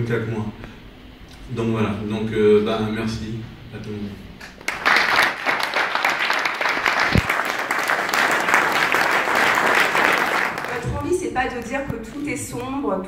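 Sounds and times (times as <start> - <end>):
audience applauding: 4.6 - 11.7.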